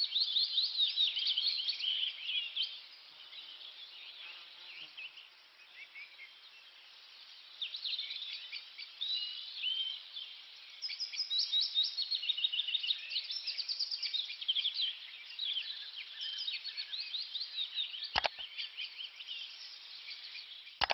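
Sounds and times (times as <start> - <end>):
songbirds chirping and singing: 0.0 - 20.9
sharp click: 18.2 - 18.4.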